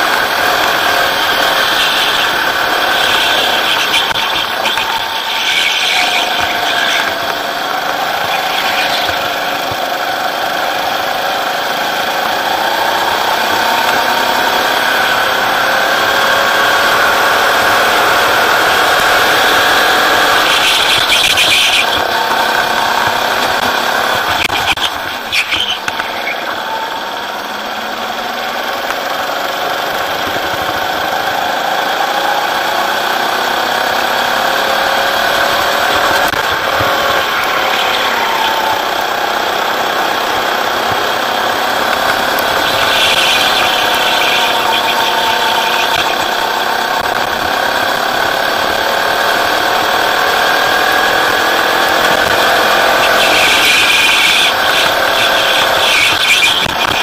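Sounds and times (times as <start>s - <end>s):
tyres squealing: 0.0s - 11.0s, 19.2s - 27.9s, 35.2s - 47.6s, 52.0s - 57.0s
go-kart engine running hard: 0.0s - 57.0s.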